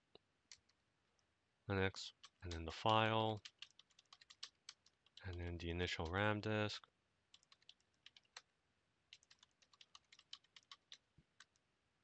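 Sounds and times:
faint keyboard typing: 0.5 - 0.8, 2.0 - 8.5, 9.1 - 11.7.

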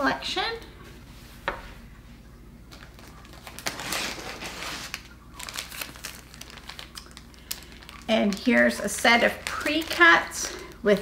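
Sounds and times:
plastic wrapping crinkling: 2.7 - 11.0.

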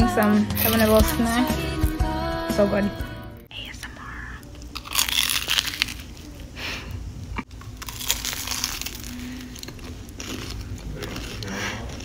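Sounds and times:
person chewing crunchy snack: 4.6 - 6.3, 7.5 - 12.0.

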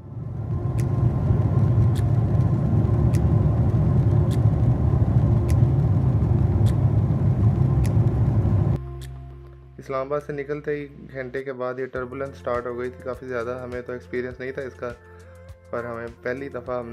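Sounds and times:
airliner cabin engine roar: 0.0 - 8.8.

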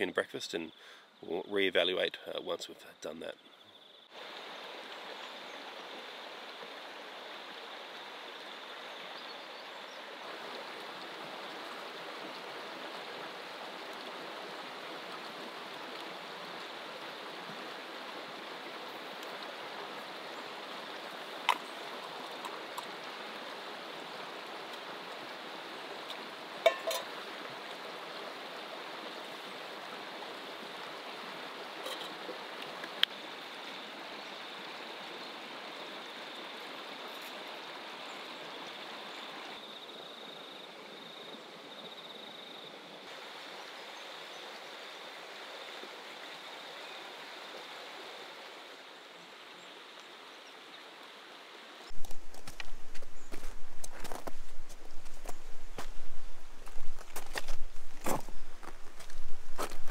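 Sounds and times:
river flowing over rocks: 4.1 - 39.6, 42.8 - 54.2.

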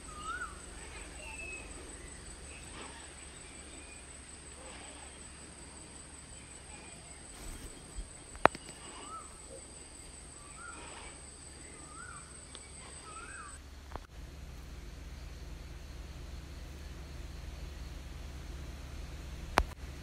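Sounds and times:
bird calling: 0.0 - 13.6.

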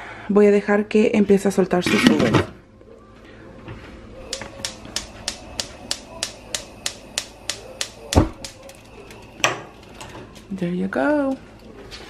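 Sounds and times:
gas igniter clicking: 4.2 - 9.6
burner lighting thump: 4.3 - 10.3.

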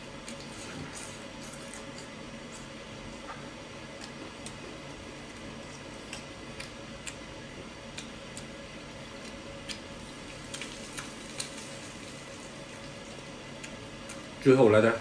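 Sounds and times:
meat crackling on a grill: 9.0 - 14.6.

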